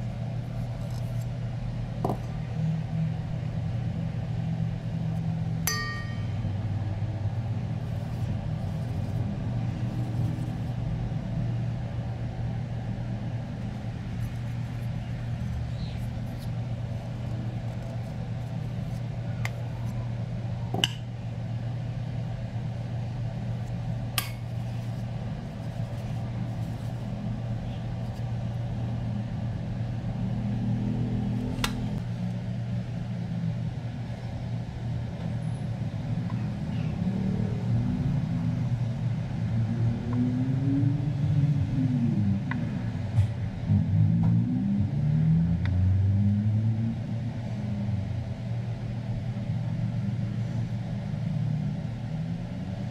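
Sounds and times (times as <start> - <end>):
steady low hum: 0.0 - 52.9.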